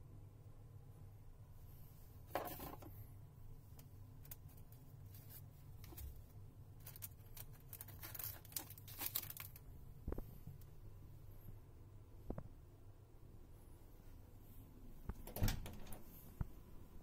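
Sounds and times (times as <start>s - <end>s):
paper and foil sachets crinkling: 6.8s - 9.6s.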